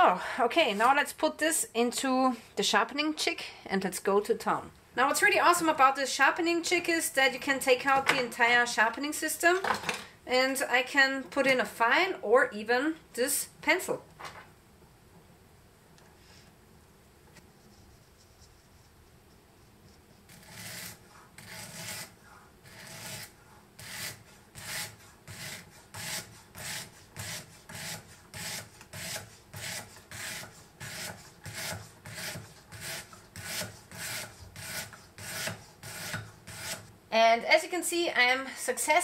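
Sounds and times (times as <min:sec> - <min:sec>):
sandpaper rasping on knife edge: 0:20.1 - 0:36.9.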